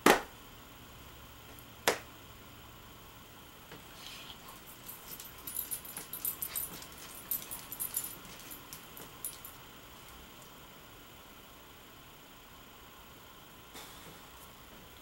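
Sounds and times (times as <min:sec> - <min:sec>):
dog collar tags jingling: 0:04.4 - 0:10.3.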